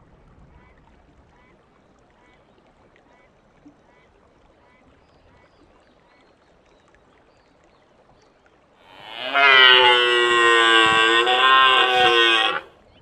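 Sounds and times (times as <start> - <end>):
deer stag roaring: 8.9 - 12.7.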